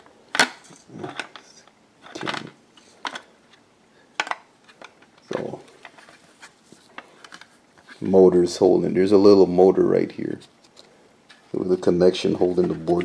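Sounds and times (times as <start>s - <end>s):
plastic parts clicking: 0.3s - 3.3s, 4.2s - 6.2s.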